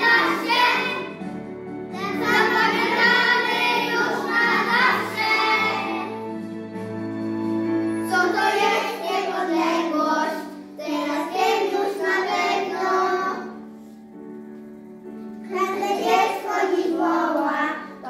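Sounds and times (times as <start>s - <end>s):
children singing: 0.0s - 1.2s, 2.0s - 6.3s, 7.9s - 13.7s, 15.5s - 18.0s
instrumental accompaniment: 0.0s - 18.0s.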